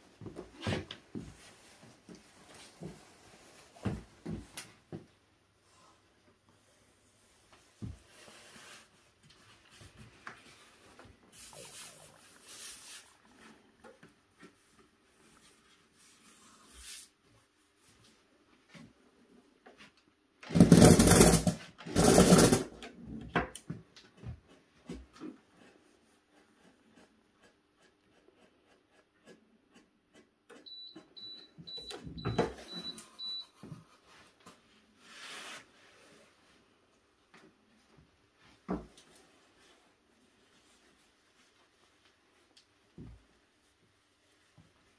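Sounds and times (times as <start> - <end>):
short high beeps: 30.7 - 33.6.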